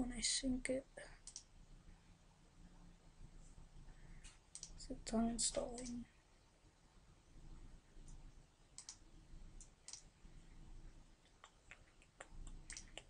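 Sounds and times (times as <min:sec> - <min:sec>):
faint computer mouse clicks: 0:01.2 - 0:01.5, 0:04.2 - 0:04.8, 0:05.7 - 0:06.0, 0:08.8 - 0:09.0, 0:09.6 - 0:10.1, 0:11.4 - 0:13.0.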